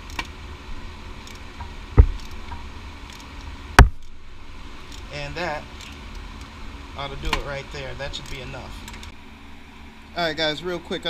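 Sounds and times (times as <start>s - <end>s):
loud metal knocks: 1.6s - 2.7s.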